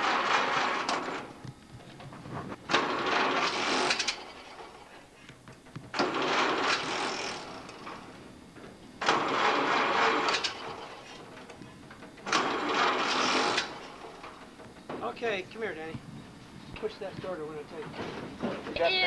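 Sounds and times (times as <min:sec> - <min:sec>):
starter motor cranking engine: 0:00.0 - 0:01.4, 0:02.7 - 0:04.9, 0:05.6 - 0:08.2, 0:09.0 - 0:14.9.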